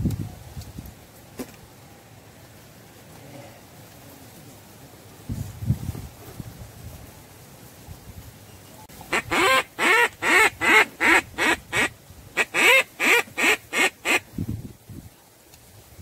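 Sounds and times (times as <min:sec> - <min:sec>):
duck quacking: 0:09.1 - 0:14.2.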